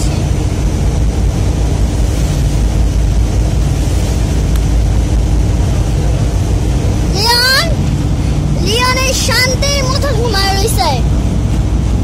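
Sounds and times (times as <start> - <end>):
loud low rumble: 0.0 - 12.0.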